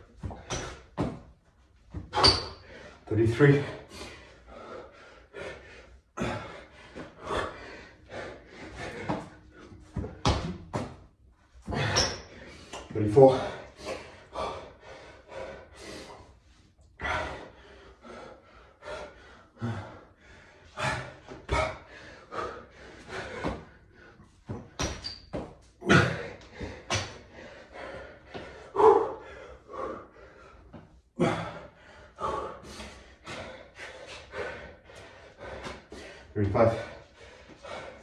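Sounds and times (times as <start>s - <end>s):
man breathing hard and grunting: 2.0s - 10.3s, 11.6s - 24.8s, 25.8s - 38.0s
hands and feet thudding on tiles: 8.8s - 12.1s, 23.1s - 27.2s.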